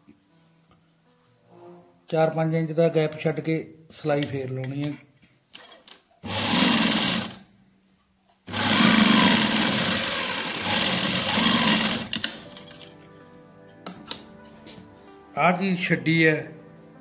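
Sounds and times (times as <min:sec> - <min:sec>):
sewing machine stitching: 0:06.2 - 0:07.4, 0:08.5 - 0:12.7.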